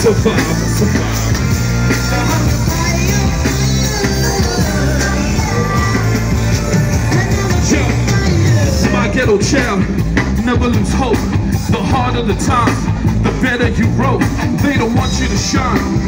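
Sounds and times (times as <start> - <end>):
live concert music: 0.0 - 16.0.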